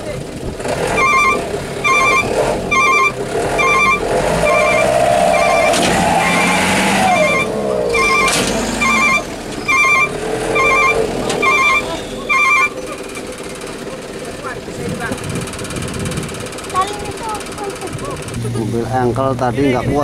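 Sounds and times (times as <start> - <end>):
diesel truck engine revving: 0.0 - 20.0
short electronic beep: 1.0 - 12.8.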